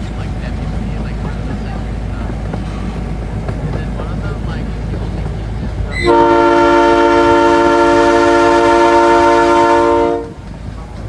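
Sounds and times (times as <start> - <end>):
locomotive horn blast: 5.8 - 10.5.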